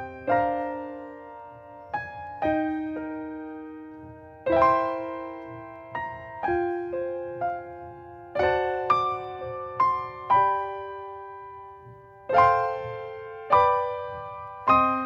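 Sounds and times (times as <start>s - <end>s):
gentle piano music: 0.0s - 15.0s.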